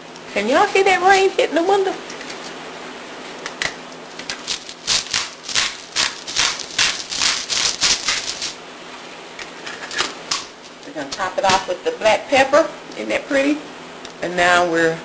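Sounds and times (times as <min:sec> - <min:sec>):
pepper mill grinding: 0:04.2 - 0:08.6.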